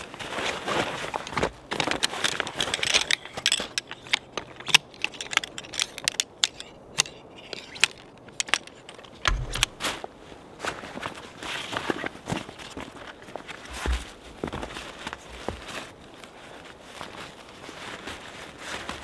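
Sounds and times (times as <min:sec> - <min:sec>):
camping gear rustling: 0:00.0 - 0:19.0
sharp clicks and clinks: 0:02.5 - 0:09.8.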